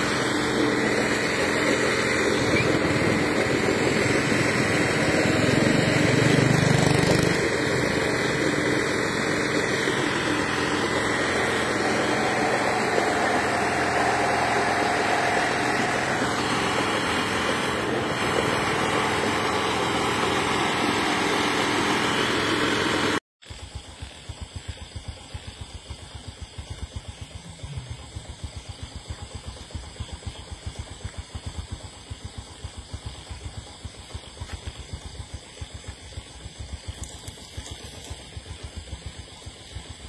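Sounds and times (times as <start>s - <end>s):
engine idling: 0.0s - 40.0s.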